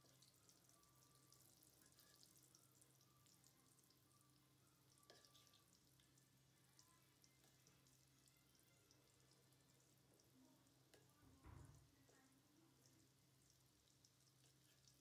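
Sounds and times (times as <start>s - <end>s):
oil crackling sizzle: 0.0s - 15.0s.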